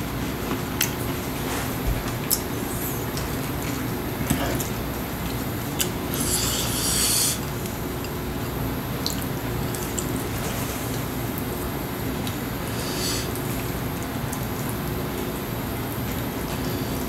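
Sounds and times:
rasping rub of cabbage leaf: 0:06.1 - 0:07.5.

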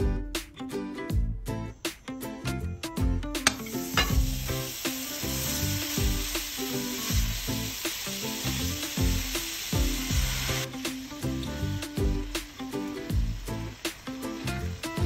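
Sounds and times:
music playing: 0:00.0 - 0:15.0
spatula stirring in a pan: 0:03.4 - 0:11.1
meat sizzling in a frying pan: 0:03.4 - 0:15.0.

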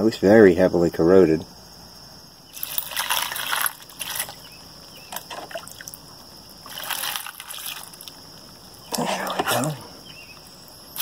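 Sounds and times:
water splashing from a jug: 0:02.5 - 0:09.8.

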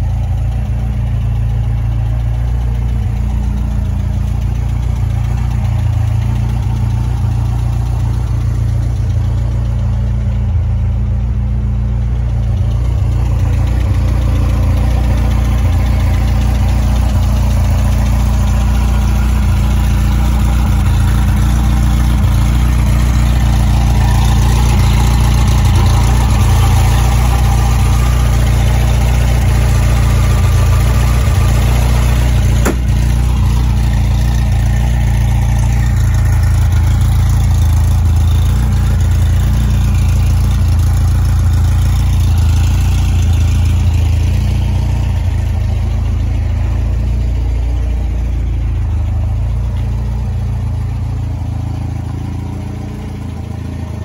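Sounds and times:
air-cooled engine idling: 0:00.0 - 0:54.0
sharp click: 0:32.6 - 0:33.1.

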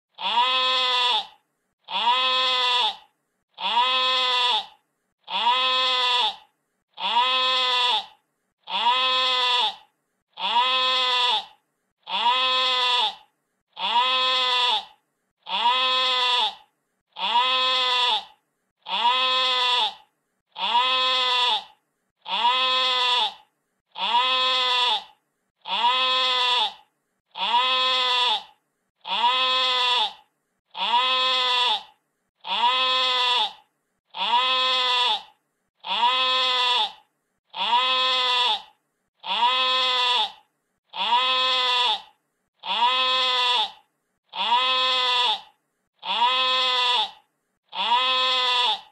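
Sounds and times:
sheep bleating: 0:00.2 - 0:13.2, 0:13.8 - 0:23.4, 0:24.0 - 0:48.9.

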